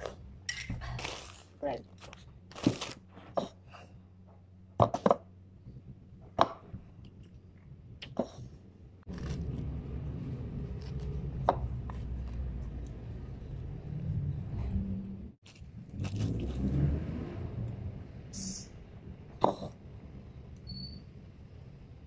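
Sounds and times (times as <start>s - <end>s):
steady low rumble: 3.9s - 16.7s.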